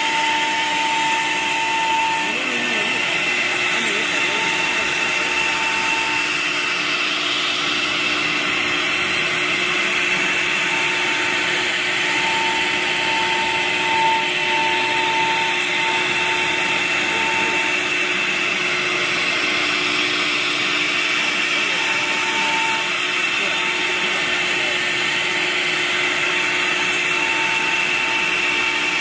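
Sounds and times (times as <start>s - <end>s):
pulsing whistling tone: 0.0s - 6.8s, 7.5s - 19.3s, 26.1s - 29.0s
router spindle whine: 0.0s - 29.0s
rushing noise of cutting: 0.0s - 29.0s.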